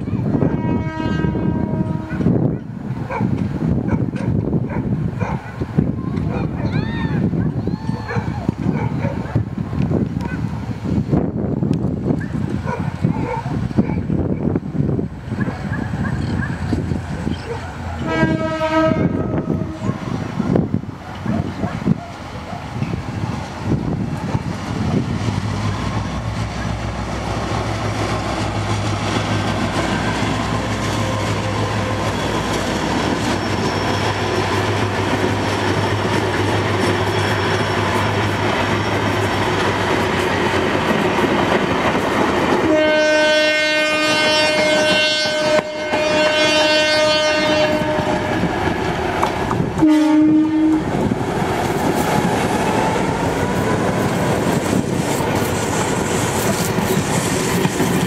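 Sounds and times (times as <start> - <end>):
train rumbling on rails: 0.0 - 58.0
locomotive horn blast: 0.4 - 2.4, 18.0 - 20.2, 42.6 - 48.6, 49.8 - 51.0.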